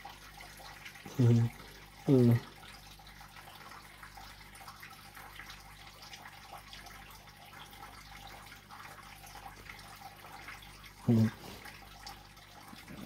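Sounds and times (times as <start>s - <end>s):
aquarium water trickling and bubbling: 0.0s - 13.0s.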